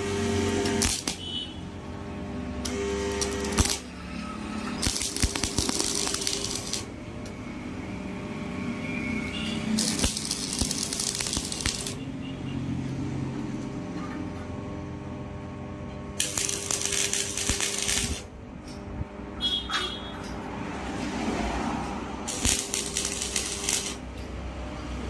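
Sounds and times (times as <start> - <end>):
arc welding bursts: 0.0 - 1.7, 2.6 - 7.0, 8.9 - 12.1, 16.2 - 18.3, 22.3 - 24.1.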